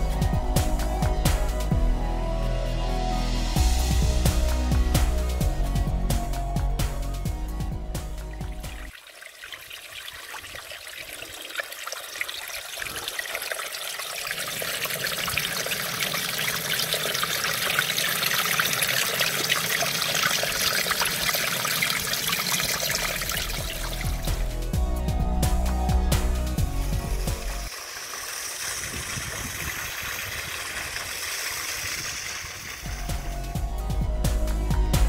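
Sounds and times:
stream water trickling over stones: 0:08.2 - 0:24.7, 0:27.1 - 0:33.5.

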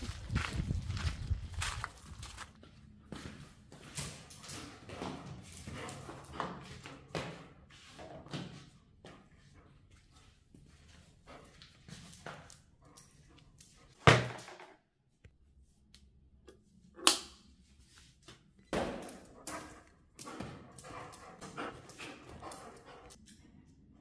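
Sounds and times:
dog moving on tiled floor: 0:03.1 - 0:14.0, 0:18.2 - 0:23.4.

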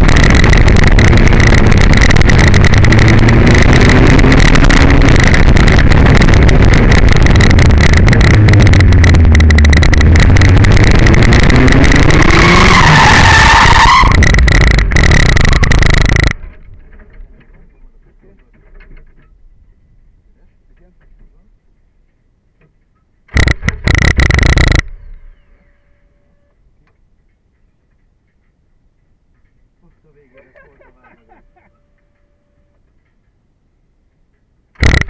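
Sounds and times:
car engine running hard: 0:00.0 - 0:16.5
tyres squealing: 0:12.2 - 0:16.3.

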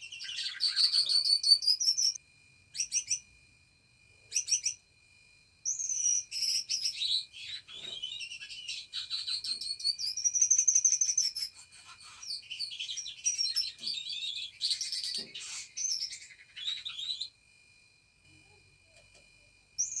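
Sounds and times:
budgerigars chirping and warbling: 0:00.1 - 0:02.2, 0:06.4 - 0:10.6, 0:11.2 - 0:17.2.

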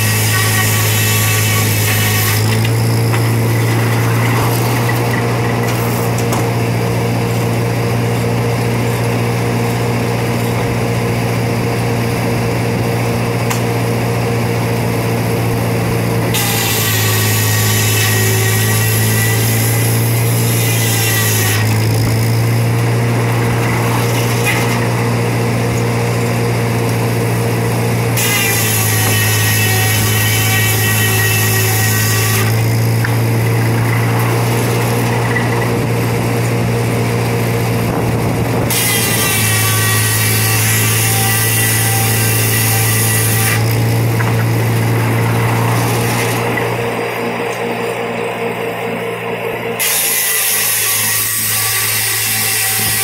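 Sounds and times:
circular saw blade whine: 0:00.0 - 0:53.0
low hum of drive: 0:21.5 - 0:49.8.

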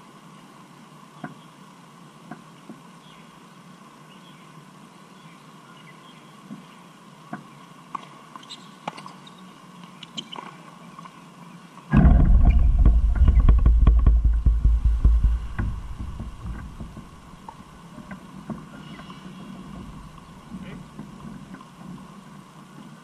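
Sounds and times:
wind buffeting microphone: 0:11.9 - 0:17.7.

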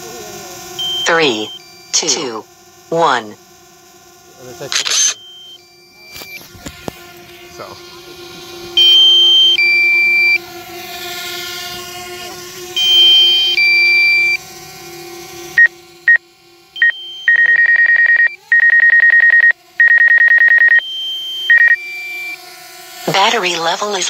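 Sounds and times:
steady hum: 0:00.0 - 0:24.0
short beeps: 0:00.8 - 0:02.4, 0:04.7 - 0:06.4, 0:08.8 - 0:10.4, 0:16.8 - 0:22.4
rapid high beeping: 0:00.8 - 0:03.3, 0:04.7 - 0:06.1, 0:08.8 - 0:10.4, 0:12.8 - 0:14.4, 0:15.6 - 0:16.2, 0:16.8 - 0:22.4
falling two-note beep: 0:16.8 - 0:22.4.

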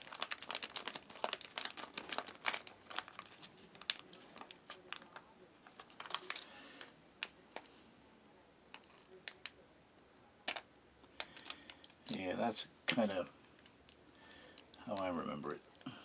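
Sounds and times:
foil packet crinkling: 0:00.0 - 0:07.7, 0:11.2 - 0:12.0.

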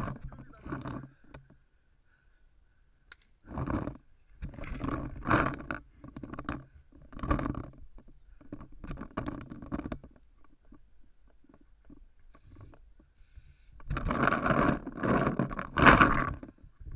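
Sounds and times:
muffled breathing into microphone: 0:00.0 - 0:02.9, 0:12.3 - 0:14.4.

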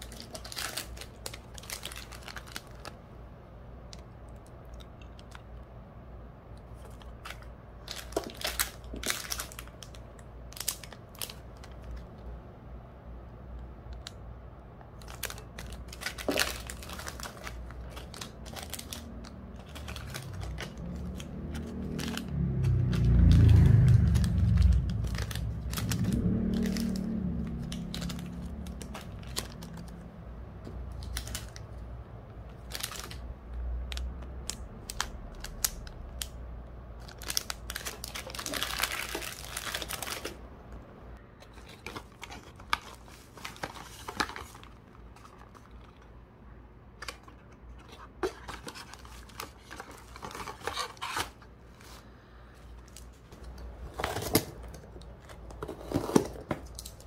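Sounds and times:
plastic bags crinkling: 0:00.0 - 0:03.0, 0:06.8 - 0:12.0, 0:15.0 - 0:30.0, 0:30.9 - 0:31.8, 0:32.5 - 0:33.3, 0:37.0 - 0:40.4, 0:41.5 - 0:46.0, 0:47.1 - 0:51.4
low handling rumble: 0:16.7 - 0:32.3.

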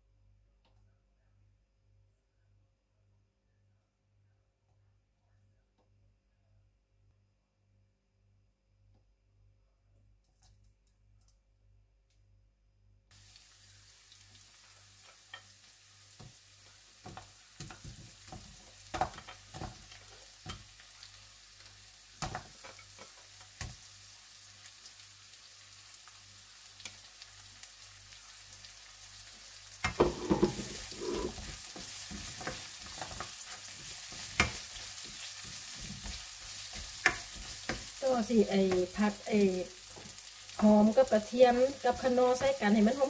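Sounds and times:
food sizzling in hot oil: 0:13.1 - 0:43.0
spatula scraping and tapping pan: 0:17.0 - 0:20.8, 0:22.2 - 0:23.8, 0:29.8 - 0:38.0.

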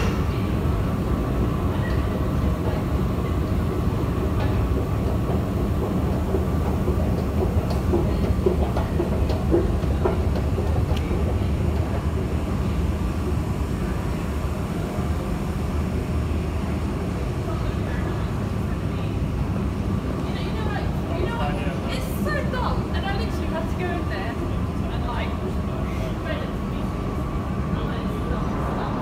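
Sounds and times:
underground train rumble: 0:00.0 - 0:29.0
footsteps clicking: 0:04.2 - 0:12.2.

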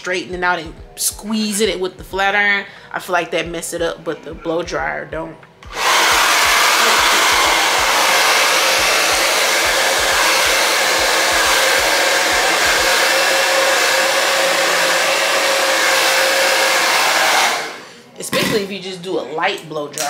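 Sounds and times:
hair dryer running: 0:05.6 - 0:18.0.

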